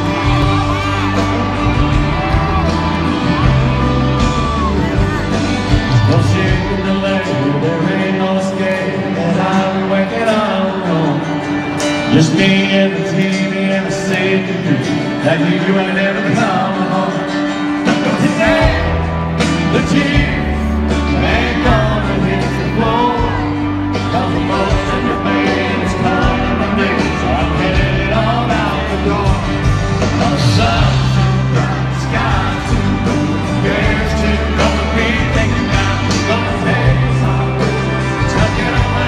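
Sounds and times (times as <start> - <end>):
bass line: 0.0 - 8.4, 18.0 - 39.0
live country band playing: 0.0 - 39.0
man singing lead: 0.0 - 39.0.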